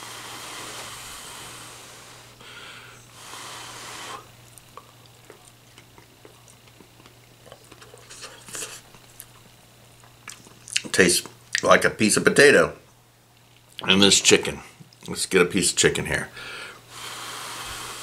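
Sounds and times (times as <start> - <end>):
breath blowing on food: 0.0 - 4.4, 16.4 - 18.0
faint electrical hum: 0.0 - 18.0
quiet chewing with clicks: 4.4 - 11.6, 13.3 - 13.9.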